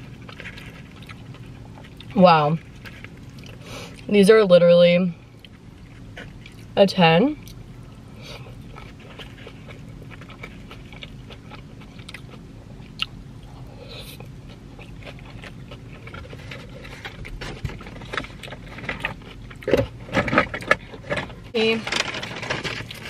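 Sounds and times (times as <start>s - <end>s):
person chewing and swallowing: 0.0s - 4.1s, 5.3s - 6.8s, 7.4s - 21.0s
steady low hum: 0.0s - 23.0s.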